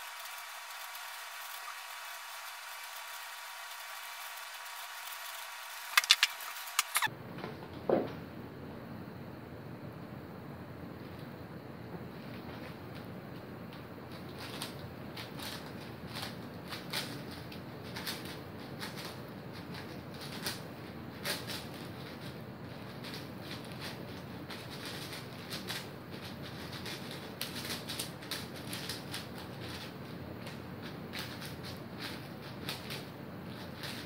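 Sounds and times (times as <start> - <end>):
speed cube clicking: 0.0 - 7.1, 14.4 - 20.6, 26.5 - 34.0
steady hiss: 0.0 - 7.1.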